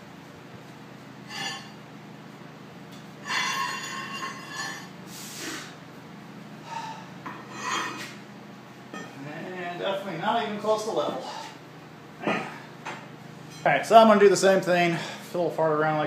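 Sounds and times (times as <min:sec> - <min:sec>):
steel scraping and clinking: 0:01.3 - 0:01.8, 0:03.2 - 0:04.9, 0:07.3 - 0:08.2.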